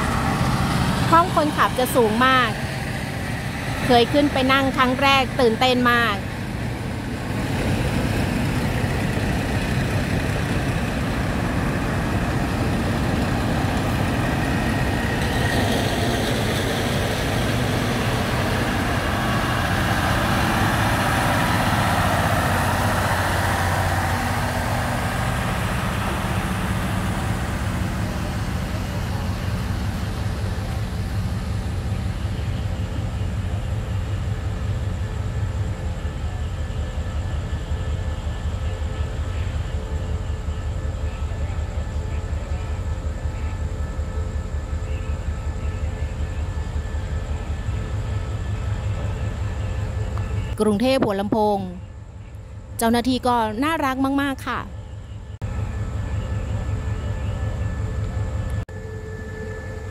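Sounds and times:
diesel train engine passing: 0:00.0 - 0:59.9.

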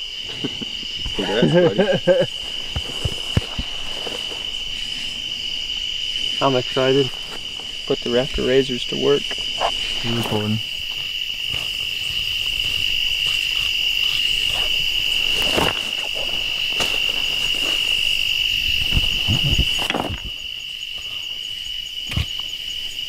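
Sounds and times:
crickets chirring: 0:00.0 - 0:23.0
handling knocks and rustles: 0:02.4 - 0:04.7, 0:14.7 - 0:18.1.

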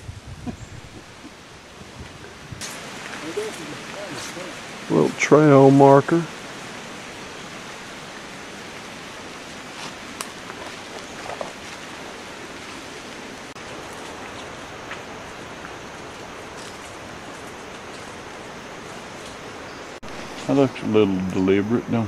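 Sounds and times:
hiss of water: 0:01.8 - 0:19.4
footsteps on leaves: 0:02.6 - 0:04.6, 0:08.2 - 0:20.6.

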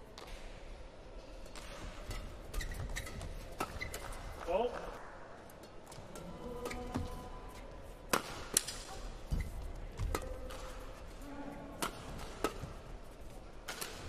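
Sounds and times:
rackets striking shuttlecock: 0:05.7 - 0:14.0.

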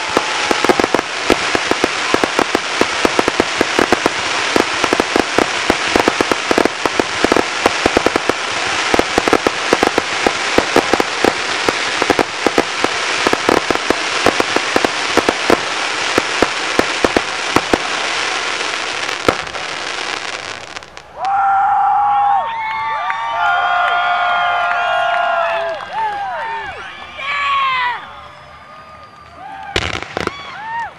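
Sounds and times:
crowd cheering and whistling: 0:00.0 - 0:05.1, 0:21.1 - 0:30.9
fireworks crackling: 0:00.0 - 0:21.4, 0:29.0 - 0:30.8.

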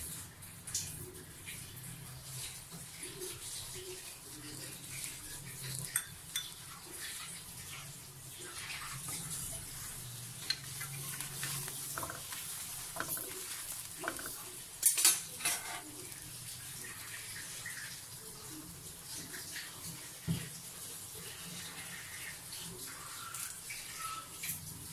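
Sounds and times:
bread sizzling: 0:00.0 - 0:24.9
metal spatula scraping on iron pan: 0:10.4 - 0:16.0.

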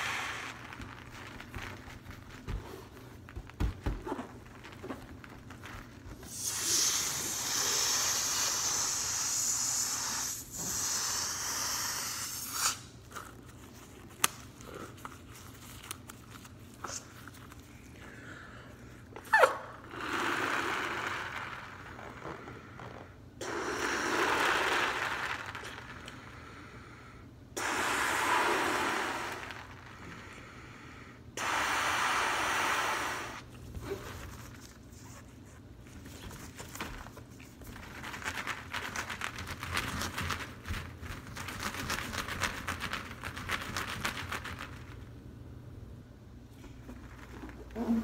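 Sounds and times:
breaths blowing up balloon: 0:00.0 - 0:05.5, 0:06.1 - 0:13.5, 0:18.0 - 0:34.1
crackly rustling of gloved hands: 0:00.0 - 0:06.3, 0:13.1 - 0:18.0
balloon squeak: 0:19.2 - 0:22.4.

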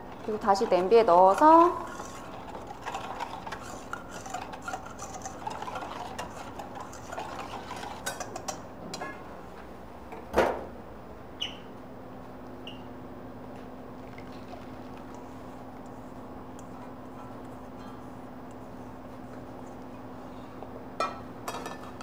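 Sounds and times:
utensil scraping a bowl: 0:00.0 - 0:08.6.

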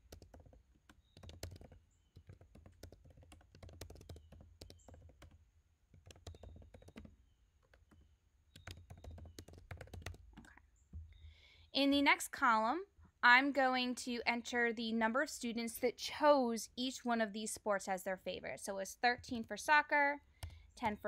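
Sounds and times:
faint keyboard typing: 0:00.0 - 0:11.4, 0:19.0 - 0:19.7, 0:20.3 - 0:21.0.

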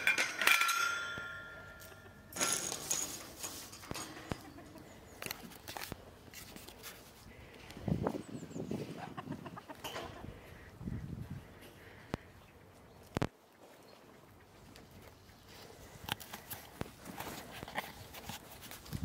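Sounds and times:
chickens and geese calling: 0:01.4 - 0:02.4, 0:03.9 - 0:13.2
clucking: 0:04.1 - 0:05.3, 0:08.8 - 0:12.3.

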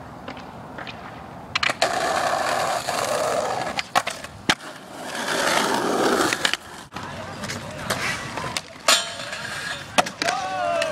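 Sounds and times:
skateboard grinding on ledge: 0:01.6 - 0:06.9.

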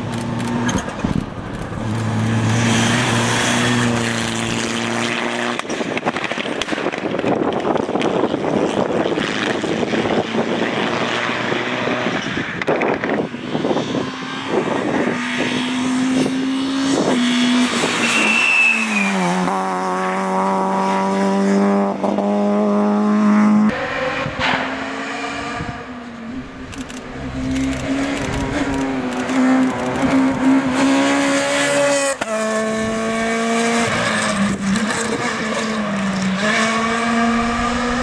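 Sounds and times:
rally car engines revving: 0:00.0 - 0:38.0
tyre squeal: 0:18.0 - 0:19.4.

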